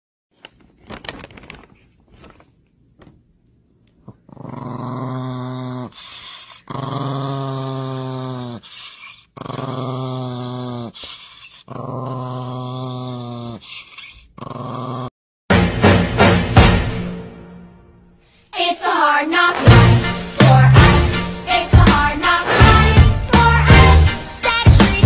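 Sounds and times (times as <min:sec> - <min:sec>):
faint rustles: 0:00.4 - 0:03.2
small dog growling: 0:04.0 - 0:15.1.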